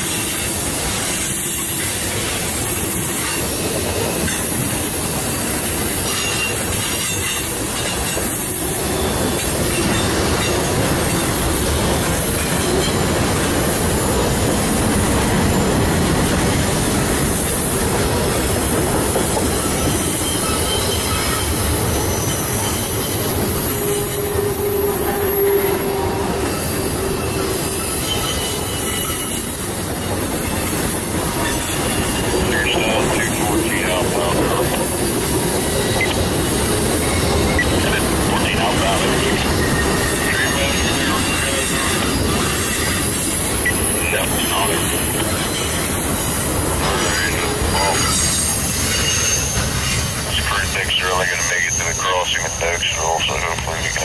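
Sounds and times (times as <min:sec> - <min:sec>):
train wheels on rails: 0:00.0 - 0:54.0
high wheel squeal: 0:19.5 - 0:38.0, 0:38.6 - 0:50.2.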